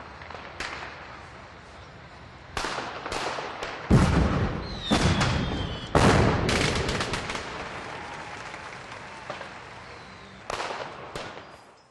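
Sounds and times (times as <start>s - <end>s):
sharp bangs: 2.5s - 7.8s.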